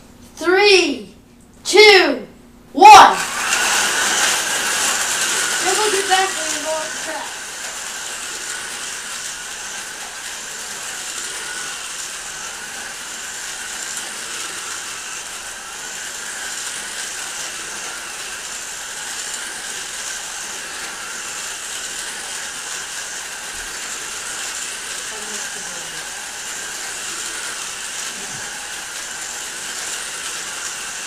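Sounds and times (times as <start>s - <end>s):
small electric motors whirring: 2.9s - 31.0s
slot cars rattling in track: 5.6s - 7.2s.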